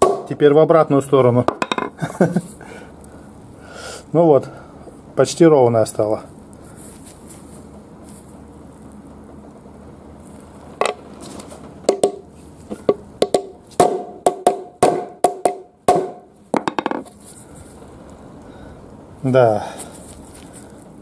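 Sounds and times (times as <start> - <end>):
hammer striking steel plate: 0.0 - 0.4, 13.2 - 17.0.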